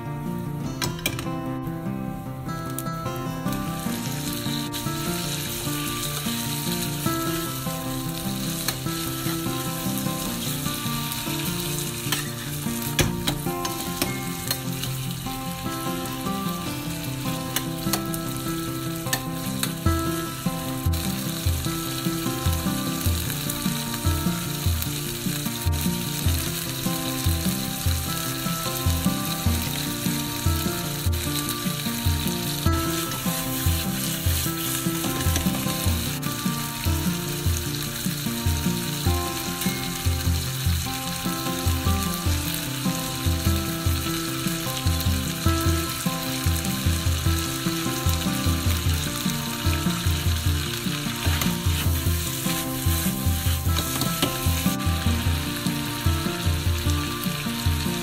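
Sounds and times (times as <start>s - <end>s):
background music: 0.0s - 58.0s
meat sizzling in hot oil: 2.6s - 58.0s
spatula scraping pan: 50.3s - 54.8s.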